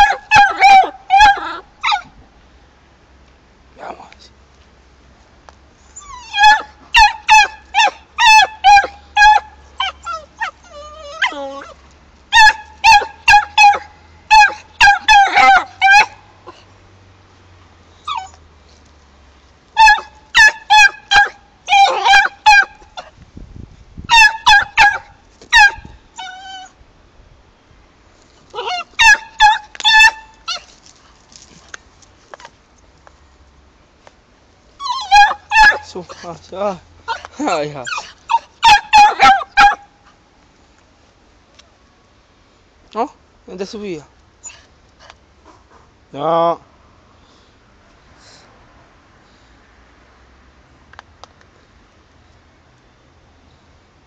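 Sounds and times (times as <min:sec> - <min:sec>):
dog whining: 0:00.0 - 0:02.1, 0:05.9 - 0:16.6, 0:18.0 - 0:18.4, 0:19.8 - 0:23.1, 0:24.1 - 0:26.8, 0:28.5 - 0:30.7, 0:34.8 - 0:36.3, 0:37.0 - 0:39.8
dog yapping barks: 0:00.0 - 0:02.1, 0:06.3 - 0:10.5, 0:12.3 - 0:16.2, 0:19.8 - 0:23.1, 0:24.1 - 0:26.4, 0:28.6 - 0:30.7, 0:34.9 - 0:36.3, 0:37.1 - 0:39.9.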